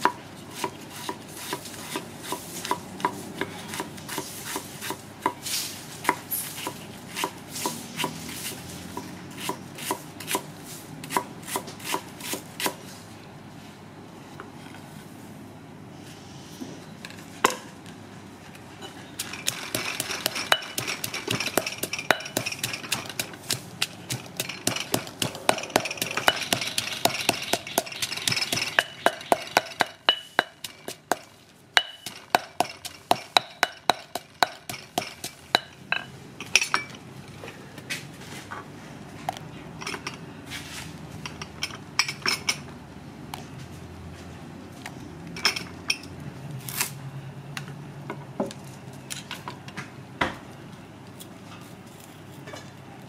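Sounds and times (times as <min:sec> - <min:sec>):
stone pestle pounding in mortar: 0:19.2 - 0:35.7.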